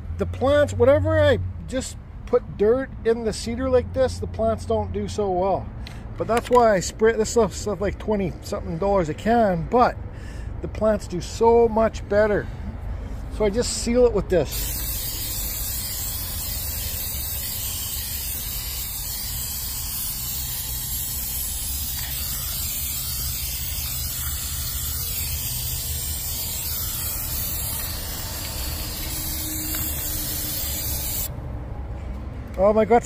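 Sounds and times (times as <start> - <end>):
aerosol can spraying: 14.5 - 31.3.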